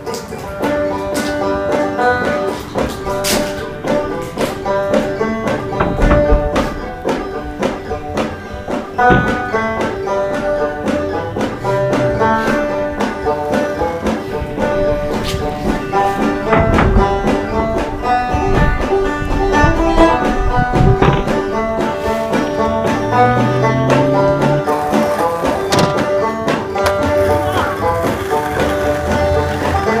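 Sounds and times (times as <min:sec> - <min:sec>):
banjo picking: 0:00.0 - 0:30.0.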